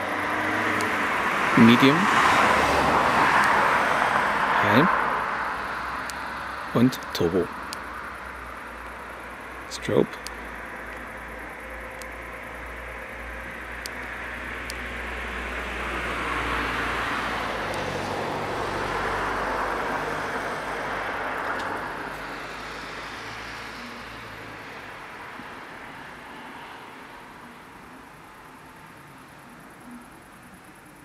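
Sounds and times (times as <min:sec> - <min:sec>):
vehicle driving past: 0:00.0 - 0:06.8, 0:10.4 - 0:28.0.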